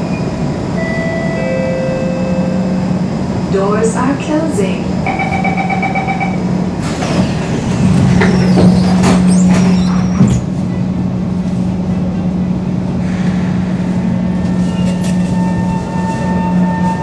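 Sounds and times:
train electrical hum: 0:00.0 - 0:17.0
train doors sliding shut: 0:06.7 - 0:17.0.

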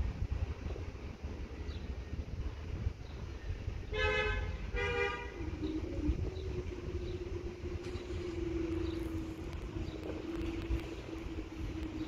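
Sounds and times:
steady hum: 0:00.0 - 0:12.0
train horn two-note blast: 0:03.9 - 0:05.8.

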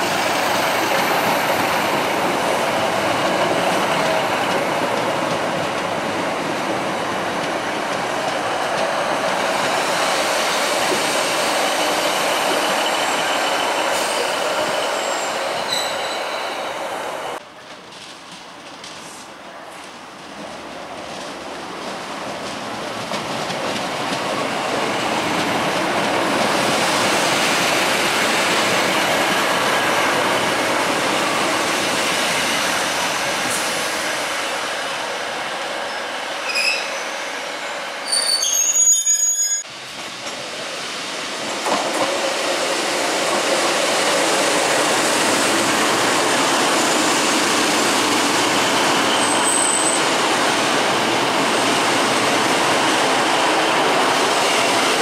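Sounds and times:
high-pitched wheel squeal: 0:11.8 - 0:16.8, 0:36.4 - 0:37.2, 0:38.0 - 0:39.7.

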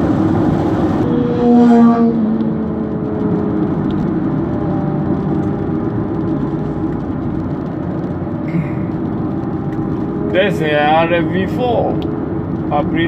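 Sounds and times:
car engine drone: 0:00.0 - 0:13.0
tyre rumble on wet road: 0:00.0 - 0:13.0.

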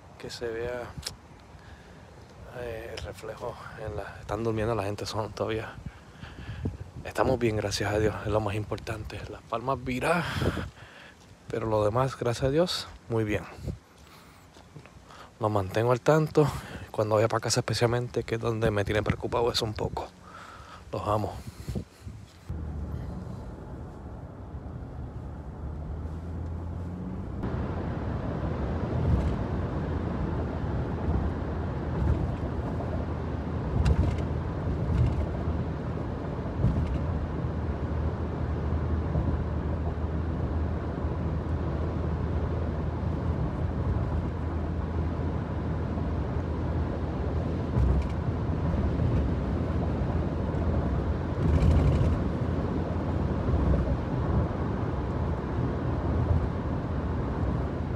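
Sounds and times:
engine and road drone: 0:22.3 - 0:57.9
car bumps: 0:33.6 - 0:35.4, 0:36.6 - 0:37.2.

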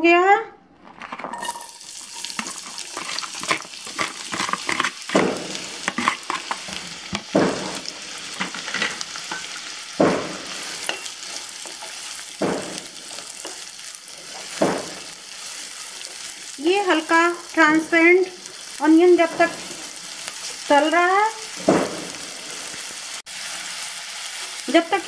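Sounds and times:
wooden spatula scraping a pan: 0:00.8 - 0:16.4
onions sizzling in a pan: 0:01.4 - 0:25.0.

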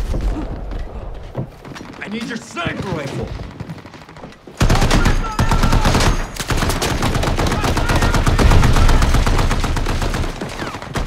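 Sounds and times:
automatic gunfire: 0:04.6 - 0:11.0.

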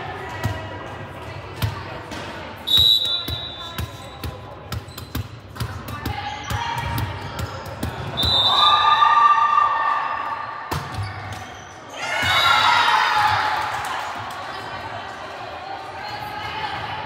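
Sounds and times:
referee's whistle: 0:02.6 - 0:04.2, 0:08.1 - 0:09.0.

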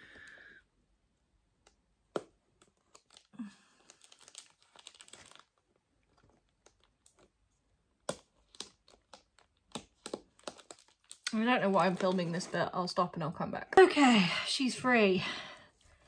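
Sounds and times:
plastic wrap crinkling and tearing: 0:02.2 - 0:12.7.

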